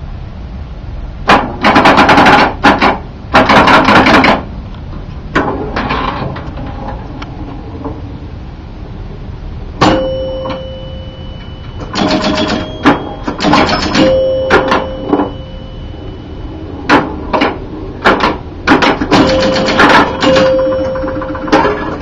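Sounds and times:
pinball bumpers and flippers clacking: 0:01.3 - 0:04.5, 0:09.8 - 0:16.2, 0:16.8 - 0:22.0
pinball chimes ringing: 0:09.8 - 0:17.2, 0:18.8 - 0:22.0
score reels and relays rattling: 0:09.8 - 0:22.0.

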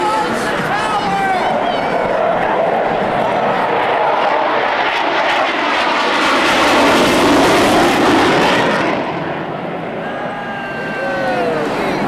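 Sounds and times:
jet engines passing overhead: 0:00.0 - 0:12.0.

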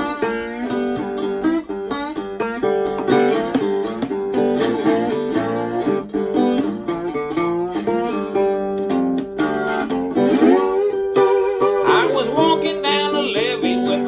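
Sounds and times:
slide acoustic guitar blues: 0:00.0 - 0:14.0.

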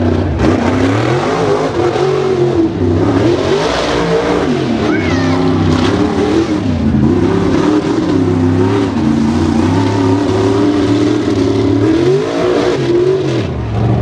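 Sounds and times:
race truck engine revving: 0:00.0 - 0:14.0.

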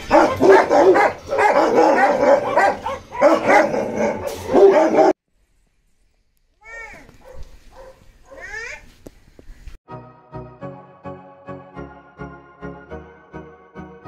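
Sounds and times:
dogs barking: 0:00.0 - 0:05.2, 0:07.2 - 0:08.6.

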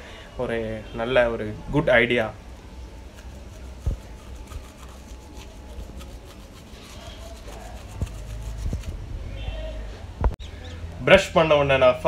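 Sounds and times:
toothbrush scrubbing teeth: 0:03.0 - 0:09.0.

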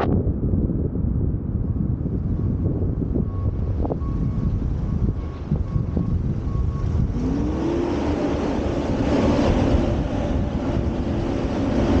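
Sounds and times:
wind rumble on microphone: 0:00.0 - 0:12.0
engine speeding up: 0:05.6 - 0:12.0.

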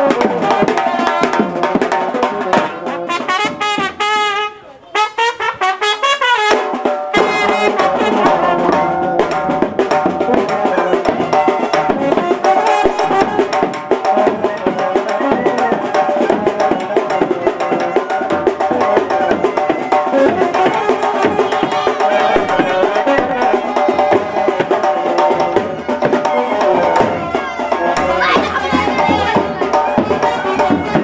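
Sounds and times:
drum beat: 0:00.0 - 0:04.4, 0:05.0 - 0:31.0
horns playing melody: 0:00.0 - 0:09.2, 0:10.2 - 0:31.0.

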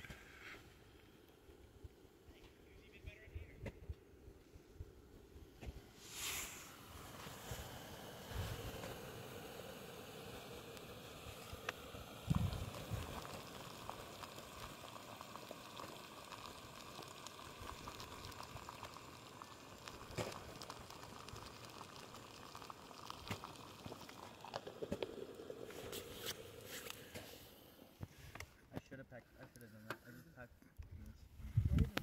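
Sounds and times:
water boiling in a pot: 0:04.8 - 0:28.0.

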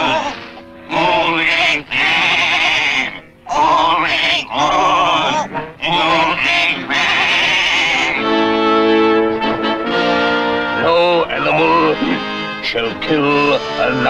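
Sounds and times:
cartoon sheep bleating: 0:00.0 - 0:09.0.

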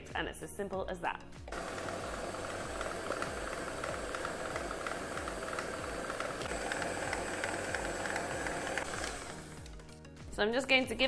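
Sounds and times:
stand mixer whisking: 0:01.5 - 0:09.8.

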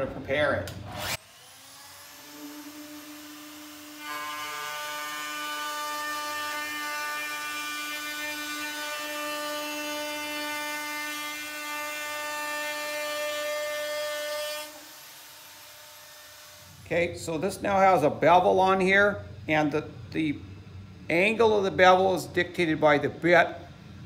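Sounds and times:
router cutting metal whine: 0:00.9 - 0:16.8.

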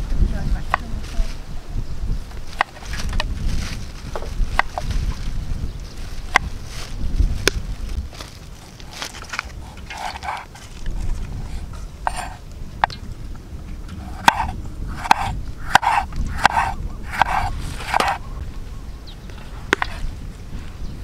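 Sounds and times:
knife slicing tomatoes on board: 0:14.1 - 0:18.2.

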